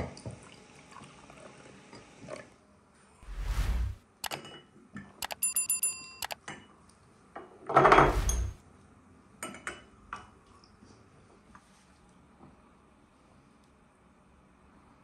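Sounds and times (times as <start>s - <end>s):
short muffled rush of noise: 3.2s - 4.0s, 8.0s - 8.6s.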